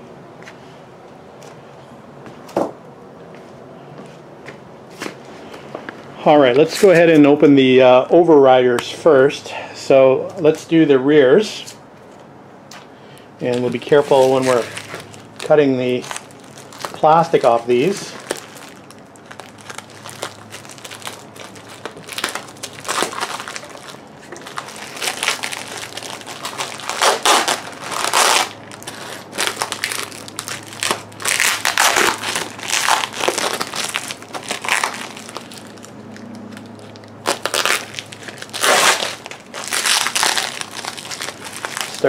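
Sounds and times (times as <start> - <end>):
plastic wrap crinkling: 13.4 - 42.0.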